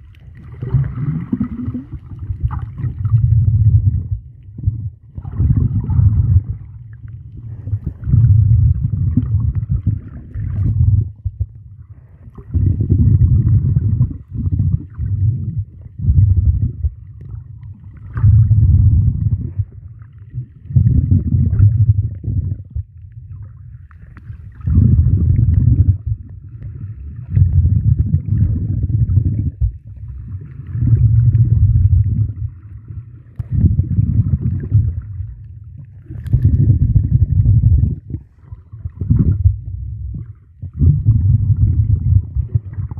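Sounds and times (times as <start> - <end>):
muffled underwater rumbling: 0.0 - 42.9.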